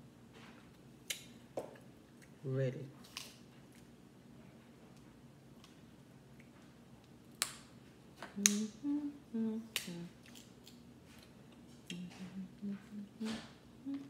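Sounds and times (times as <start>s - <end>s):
woman humming: 8.4s - 10.2s, 11.9s - 14.0s.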